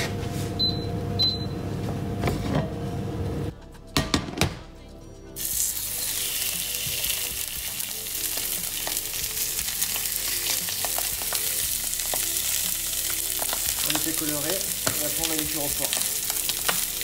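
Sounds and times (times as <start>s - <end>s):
meat sizzling in a frying pan: 5.4s - 17.0s.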